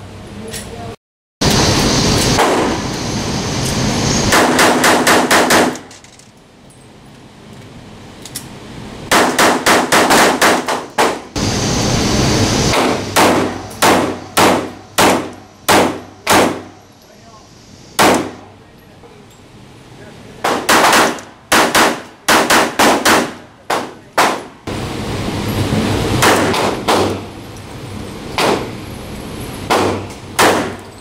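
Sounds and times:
pistol shots echoing indoors: 0:04.4 - 0:05.9, 0:09.1 - 0:11.2, 0:20.4 - 0:24.4, 0:29.7 - 0:30.9.

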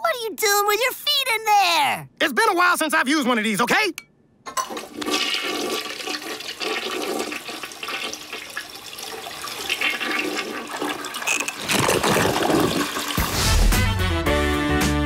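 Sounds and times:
toilet flushing: 0:04.6 - 0:13.7.

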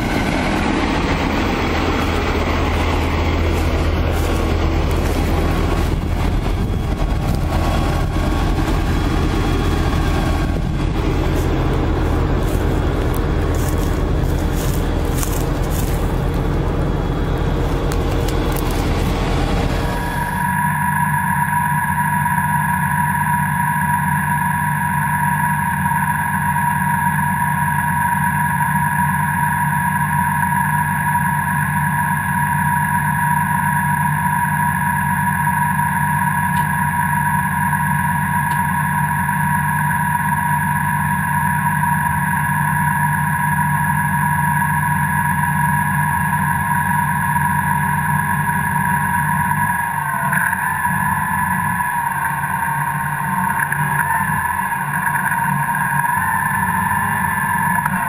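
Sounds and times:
engine whine: 0:00.0 - 0:58.0
tractor engine running: 0:00.0 - 0:58.0.

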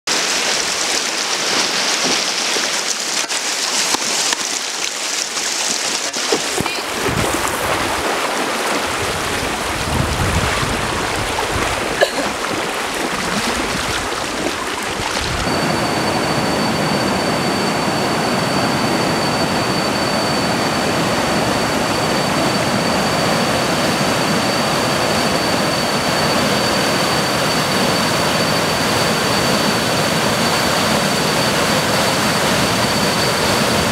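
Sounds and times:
water splashing around raft: 0:00.1 - 0:15.6
water rushing through rapids: 0:00.1 - 0:19.0
thin high whine: 0:11.2 - 0:33.9.

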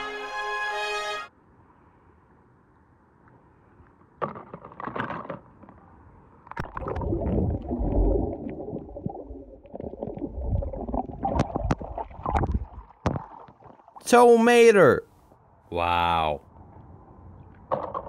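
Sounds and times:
water splashing and sloshing: 0:06.4 - 0:14.1.

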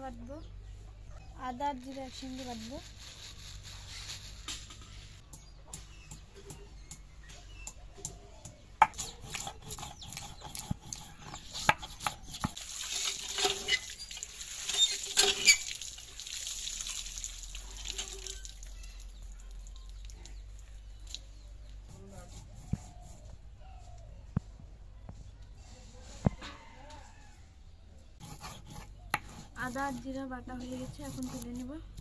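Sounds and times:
stone grinding on stone: 0:08.8 - 0:12.6, 0:14.7 - 0:15.6, 0:30.7 - 0:31.7.

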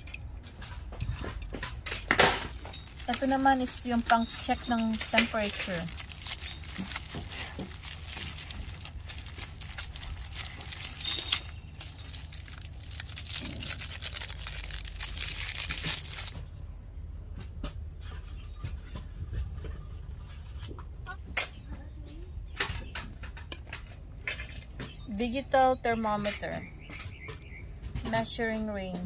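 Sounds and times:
plastic wrapping crinkling and tearing: 0:02.2 - 0:16.4.

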